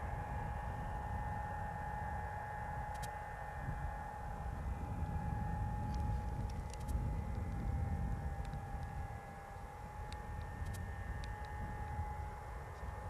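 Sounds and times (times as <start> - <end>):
steady high-pitched whine: 0.0 - 13.0
wind rumbling on microphone: 0.0 - 13.0
faint tick: 8.4 - 8.9.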